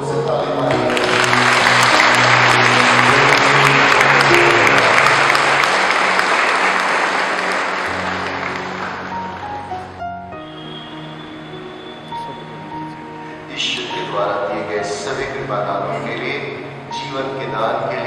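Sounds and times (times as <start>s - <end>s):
soft background music: 0.0s - 18.0s
crowd applauding: 0.4s - 12.8s.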